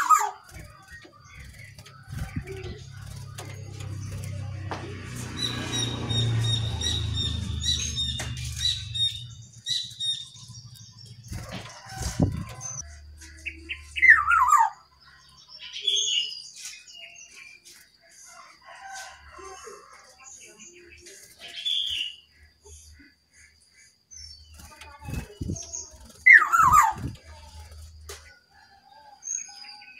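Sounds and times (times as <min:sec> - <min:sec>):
bird chattering calls: 0:24.7 - 0:27.4.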